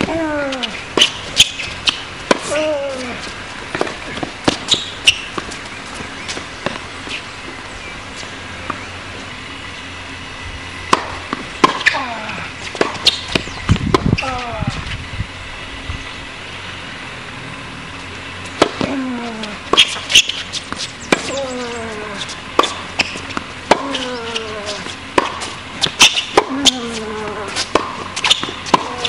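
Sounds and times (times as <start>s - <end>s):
racket striking tennis ball: 0.0s - 7.2s, 10.8s - 14.4s, 17.9s - 19.0s, 19.6s - 29.0s
tennis ball bouncing: 0.0s - 7.6s, 10.7s - 14.2s, 17.9s - 19.0s, 19.6s - 29.0s.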